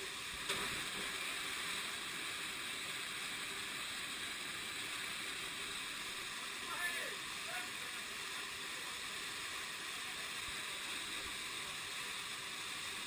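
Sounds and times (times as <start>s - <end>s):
waterfall rushing: 4.0s - 8.8s.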